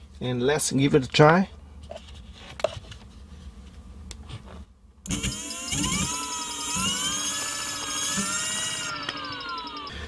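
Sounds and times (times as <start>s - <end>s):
electric motor whine: 5.1s - 10.0s.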